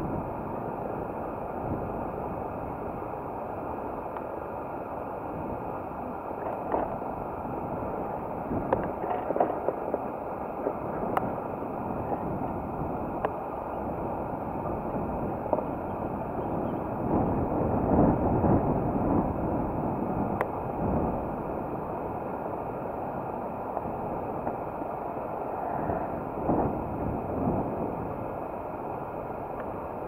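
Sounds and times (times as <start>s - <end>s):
wind rushing over microphone: 0.0s - 30.0s.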